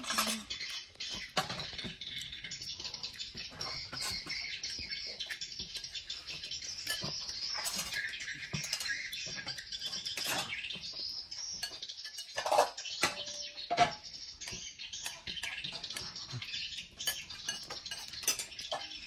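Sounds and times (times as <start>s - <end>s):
birds chirping: 0.0s - 19.0s
metal spoon clinking on bowl: 11.6s - 14.0s, 17.0s - 19.0s.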